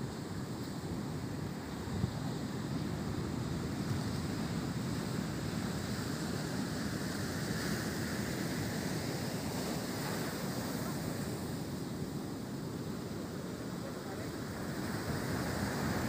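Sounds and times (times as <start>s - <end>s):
heavy surf breaking: 7.2s - 16.0s.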